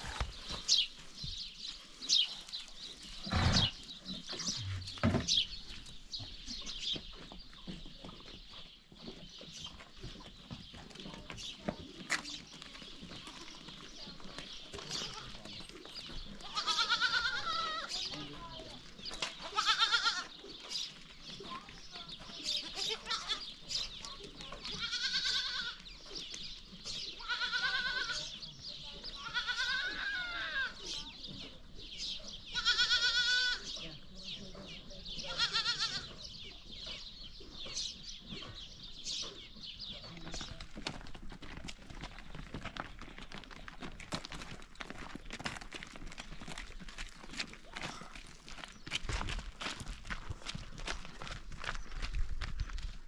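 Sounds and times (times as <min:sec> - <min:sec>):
birds chirping: 0:00.0 - 0:53.0
hooves crunching on stony path: 0:00.0 - 0:53.0
goat bleating: 0:16.4 - 0:18.0, 0:19.4 - 0:20.4, 0:22.7 - 0:23.5, 0:24.7 - 0:25.8, 0:27.2 - 0:28.3, 0:29.2 - 0:30.8, 0:32.5 - 0:33.7, 0:35.3 - 0:36.2.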